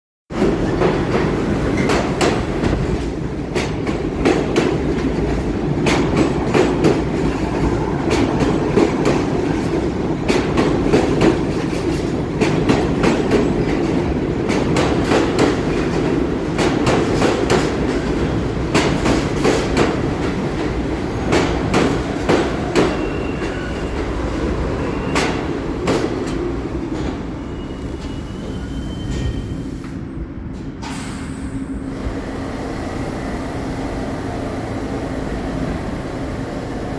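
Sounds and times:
subway train rumbling: 0:00.3 - 0:36.9
high-pitched wheel squeals: 0:27.4 - 0:29.6.

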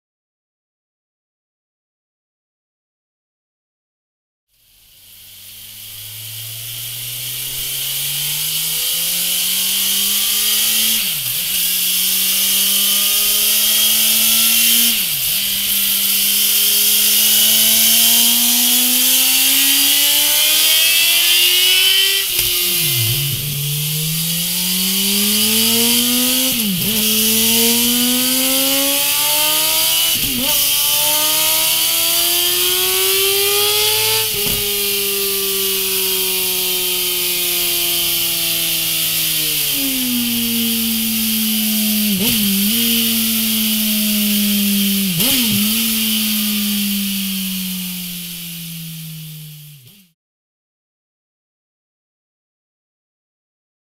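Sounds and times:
motorcycle engine revving: 0:04.5 - 0:50.2
steady hiss: 0:04.6 - 0:26.8.

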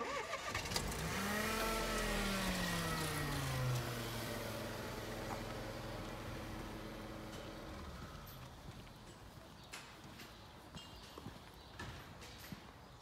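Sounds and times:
car engine running: 0:00.5 - 0:08.4.

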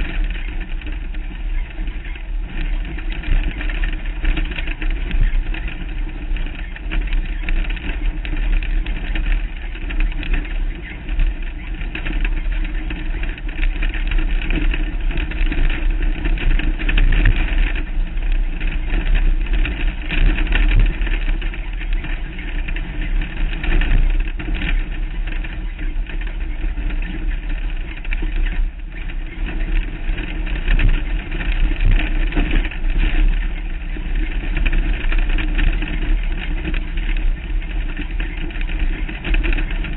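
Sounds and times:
off-road vehicle engine under load: 0:00.0 - 0:39.9
wind rumble on microphone: 0:00.0 - 0:39.9.

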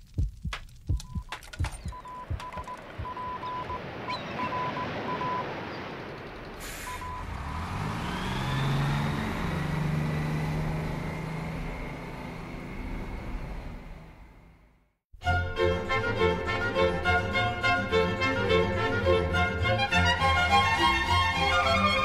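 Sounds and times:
morse code beeps: 0:00.9 - 0:05.4.

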